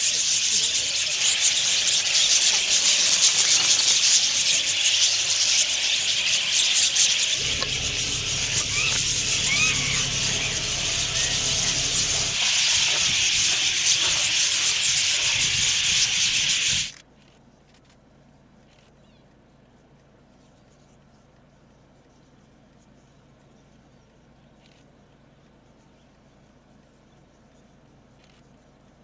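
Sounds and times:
flock of budgerigars chattering: 0.0 - 16.9
bird whistled calls: 0.1 - 16.9.

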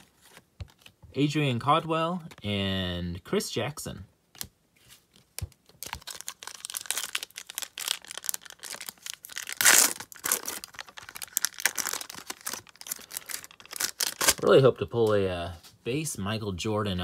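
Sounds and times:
foil wrapper crinkling: 5.7 - 14.7
foil wrapper ripping: 5.8 - 14.6.

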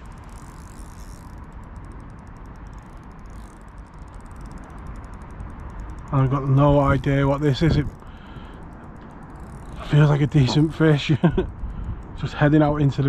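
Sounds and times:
wind: 0.0 - 13.0.

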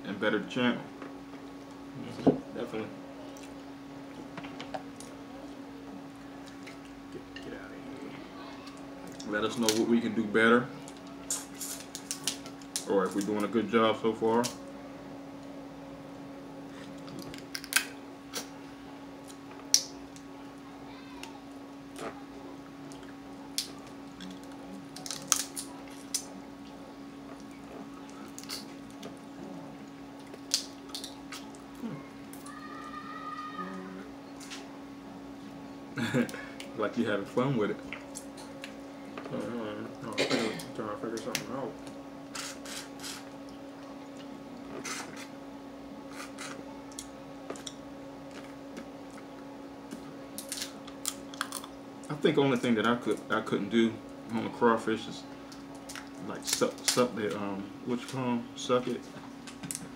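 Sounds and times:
steady low hum: 0.0 - 59.9
crab shell cracking: 10.9 - 13.4, 17.0 - 18.5, 22.9 - 26.3, 30.2 - 31.7, 49.9 - 51.7, 55.5 - 57.1.

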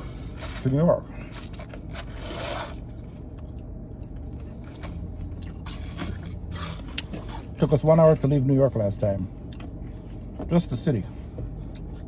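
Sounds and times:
chewing: 1.3 - 7.5.

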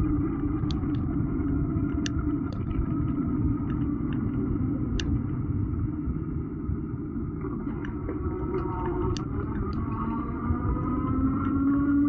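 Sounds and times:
wind rumble: 0.0 - 12.0.

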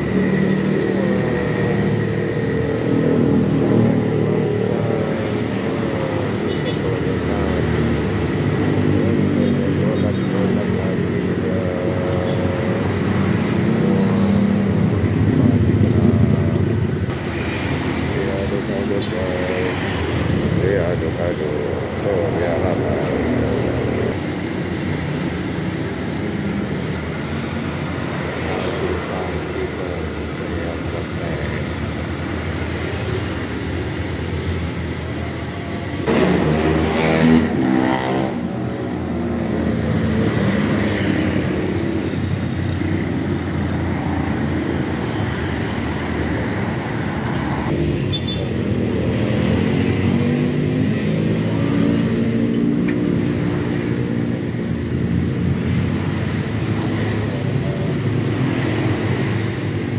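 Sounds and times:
passing vehicle engine: 17.0 - 59.9.

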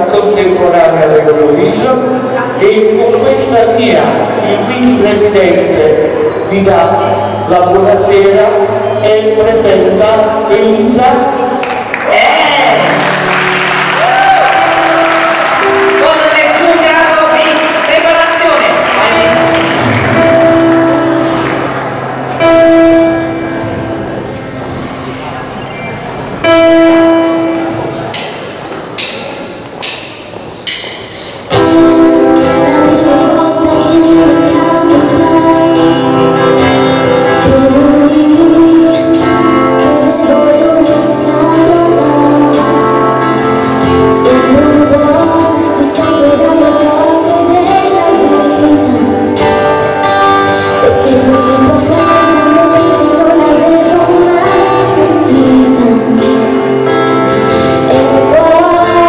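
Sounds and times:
pop band playing: 0.0 - 59.0
woman singing lead: 31.0 - 59.0.

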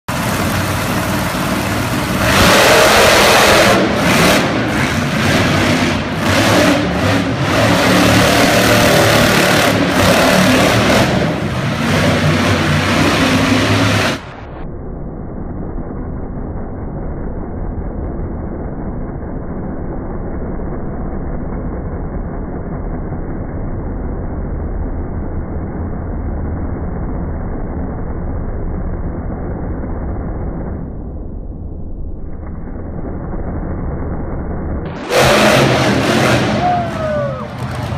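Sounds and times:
monster truck engine revving: 0.1 - 14.6, 32.4 - 37.9.

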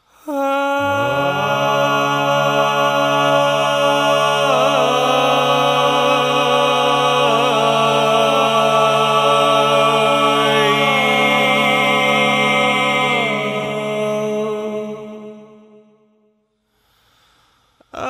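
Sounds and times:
voices singing in harmony: 0.2 - 16.2.

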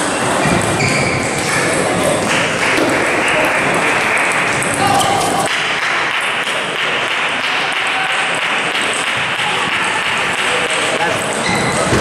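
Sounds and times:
hall chatter: 0.0 - 12.0
table tennis balls clattering: 0.2 - 5.8.

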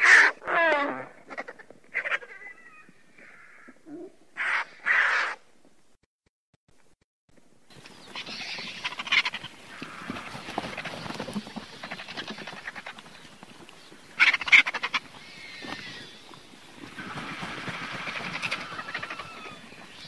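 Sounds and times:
vultures croaking and hissing: 0.0 - 5.4, 8.0 - 20.0
vulture rattling bursts: 16.8 - 19.4.

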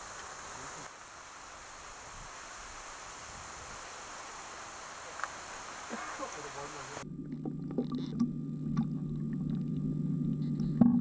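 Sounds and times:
outdoor background hiss: 0.0 - 7.1
faint click: 5.2 - 5.4.

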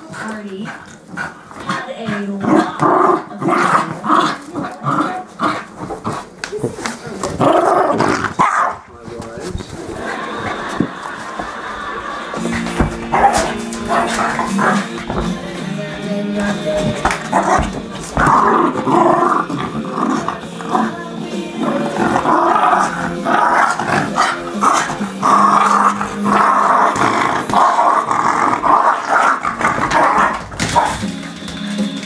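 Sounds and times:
small dog growling: 0.1 - 8.4, 16.9 - 30.9
background music: 9.9 - 32.0.

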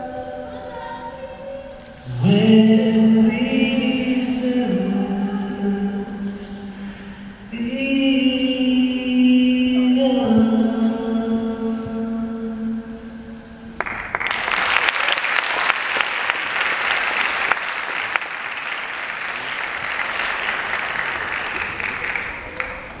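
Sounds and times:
audience applause: 13.8 - 23.0.

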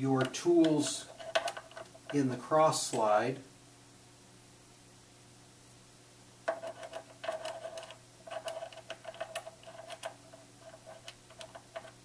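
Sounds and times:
metal tools clicking and tapping: 0.2 - 2.2.

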